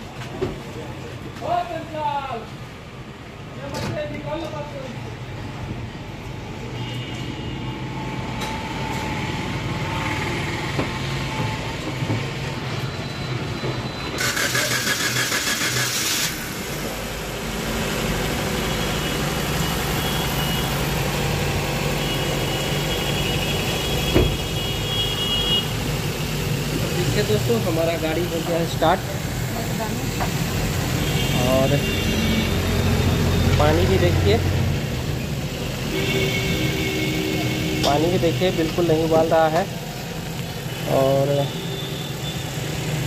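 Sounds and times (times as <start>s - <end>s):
loud hiss: 14.2s - 19.0s
thump: 24.1s - 24.4s.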